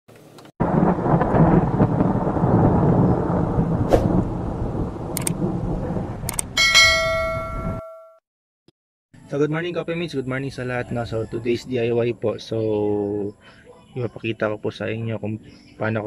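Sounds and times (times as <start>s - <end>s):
rumbling thunder: 0.6s - 7.8s
metallic ringing tone: 6.6s - 8.2s.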